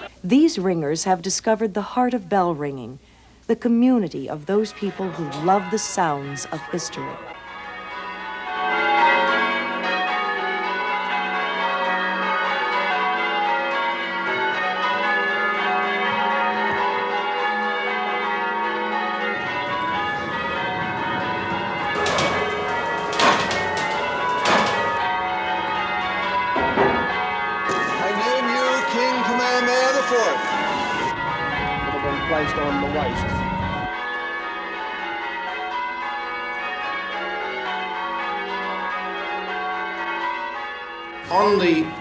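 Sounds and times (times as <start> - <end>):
tower bells pealing: 4.1 - 42.0
sharp knocks: 20.0 - 28.2.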